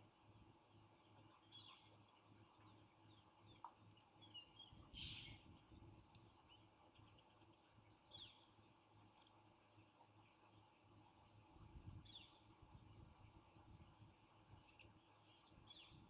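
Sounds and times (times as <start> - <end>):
steady low hum: 0.0 - 16.0
faint bird chirps: 1.0 - 8.6.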